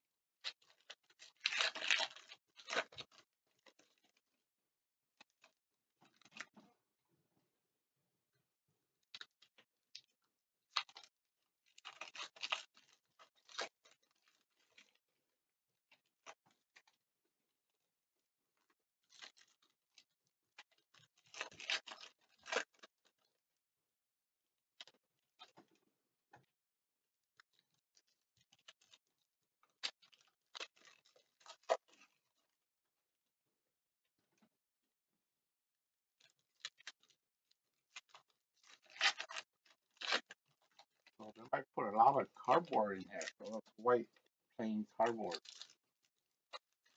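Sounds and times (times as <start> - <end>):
foil wrapper crackling and tearing: 0.4 - 4.2, 10.7 - 15.0, 19.1 - 23.3, 29.6 - 32.2, 37.9 - 41.2, 45.0 - 45.9, 46.5 - 46.9.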